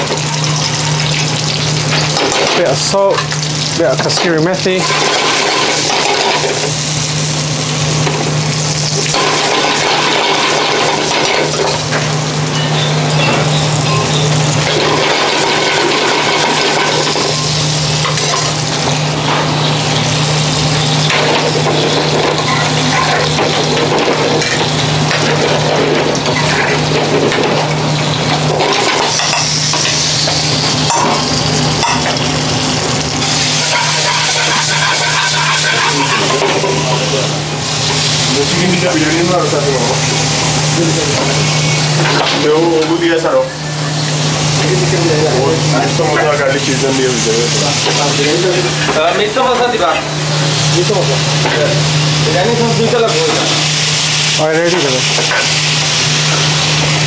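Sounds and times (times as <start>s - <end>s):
vegetables sizzling in a frying pan: 0.0s - 57.0s
metal spoon scraping a pan: 33.4s - 37.2s.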